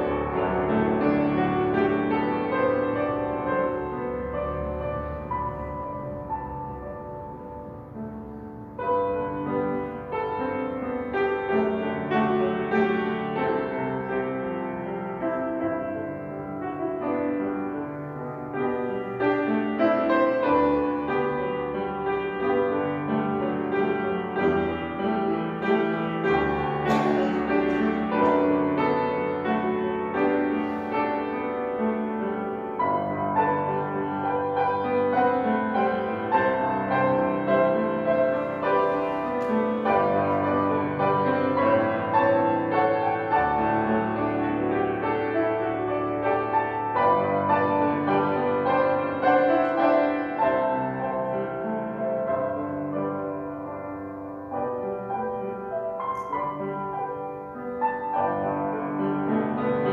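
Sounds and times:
slow solo piano piece: 0:00.0 - 0:59.9.

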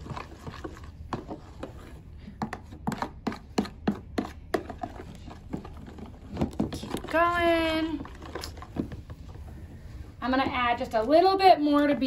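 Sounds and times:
metal spoon scraping plastic tub: 0:00.0 - 0:08.9.

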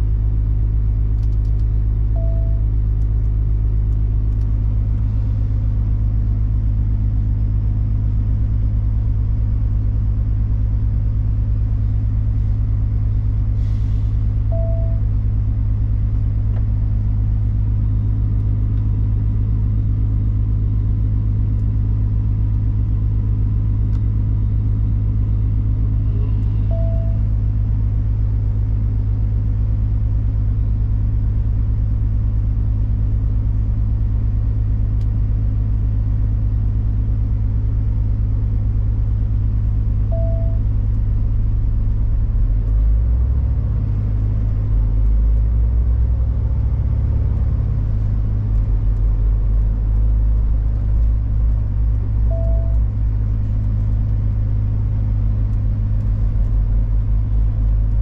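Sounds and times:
truck diesel engine rumble: 0:00.0 - 0:58.0
short beep: 0:02.1 - 0:02.7, 0:14.5 - 0:15.1, 0:26.0 - 0:27.3, 0:40.1 - 0:40.6, 0:52.3 - 0:52.8.

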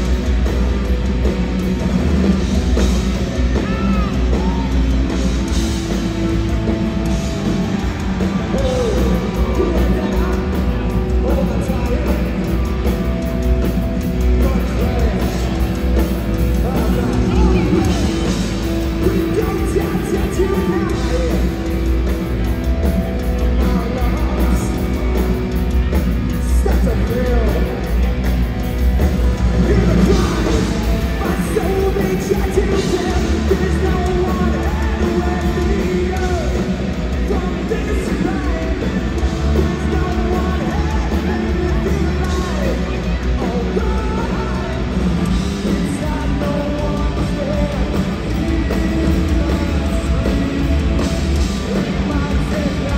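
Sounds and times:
punk rock band playing: 0:00.0 - 0:52.9
person singing: 0:16.4 - 0:21.9, 0:29.5 - 0:52.9.

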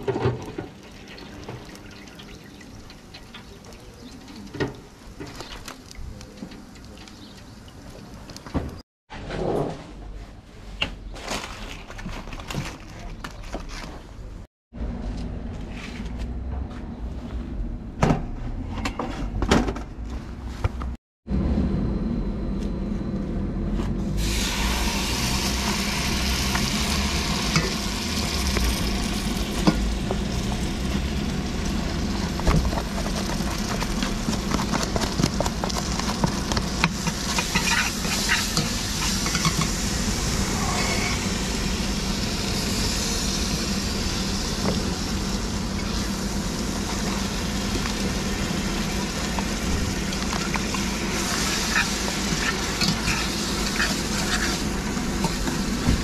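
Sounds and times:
steady low hum: 0:21.3 - 0:24.5
paste sizzling in hot oil: 0:24.2 - 0:55.8
metal spoon scraping and clicking: 0:51.7 - 0:54.6.

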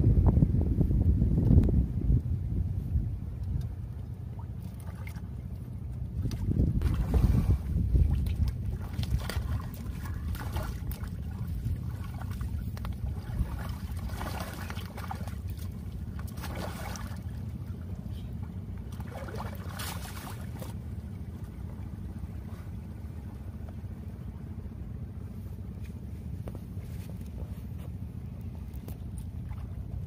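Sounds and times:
wind on microphone: 0:00.0 - 0:04.0, 0:06.1 - 0:17.2
splashing in shallow water: 0:03.6 - 0:24.4, 0:25.6 - 0:30.0.

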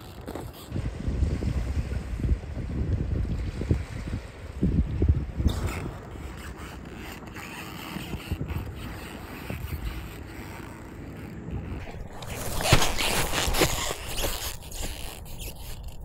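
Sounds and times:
wind rumbling on microphone: 0:00.0 - 0:16.0
rough rustling and scraping: 0:05.5 - 0:16.0.

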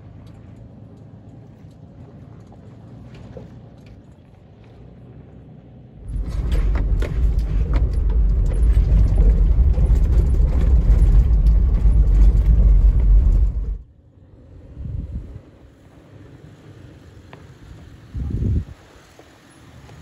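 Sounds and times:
tyre and road rumble: 0:00.0 - 0:20.0
knocks and rattles: 0:06.0 - 0:13.8.

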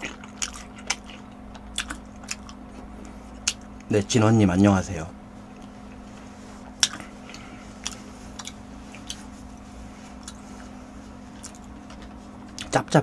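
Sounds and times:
eating clicks and smacks: 0:00.0 - 0:03.9, 0:06.7 - 0:09.3, 0:10.2 - 0:10.4, 0:11.3 - 0:12.8
steady low hum: 0:00.0 - 0:13.0.

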